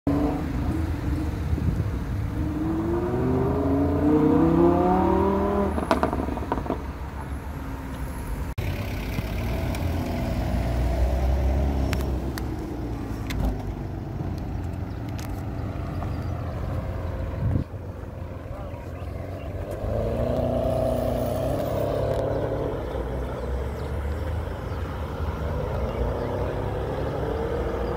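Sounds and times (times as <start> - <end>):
street traffic noise: 0.1 - 27.9
car engine accelerating hard: 2.3 - 6.9, 18.3 - 27.9
low engine rumble: 4.8 - 27.9.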